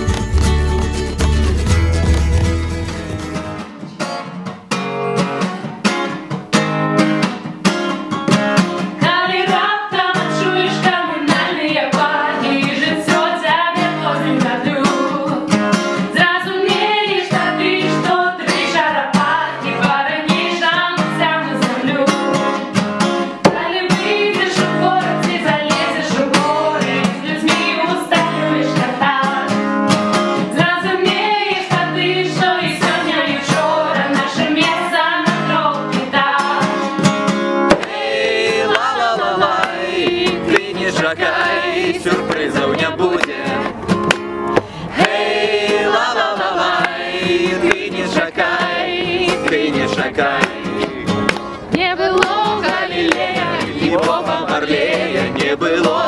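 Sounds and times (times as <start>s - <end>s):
acoustic guitar strumming: 0.0s - 56.0s
woman singing: 9.0s - 22.6s, 23.4s - 29.6s, 30.5s - 36.9s, 51.7s - 54.5s.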